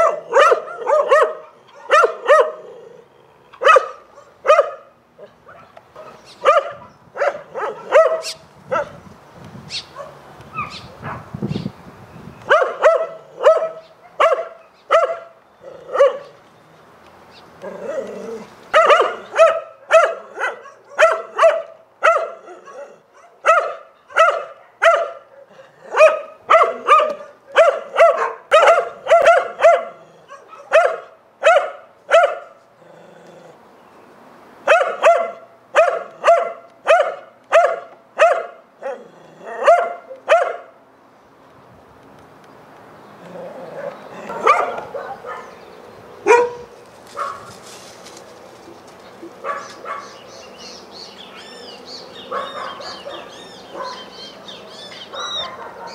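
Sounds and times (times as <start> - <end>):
dog barking: 0.0 - 2.7, 3.6 - 9.0, 9.9 - 11.3, 12.5 - 16.4, 18.7 - 32.6, 34.6 - 40.7, 43.8 - 45.6, 46.2 - 47.6, 49.4 - 50.2, 52.2 - 54.3, 55.0 - 55.9.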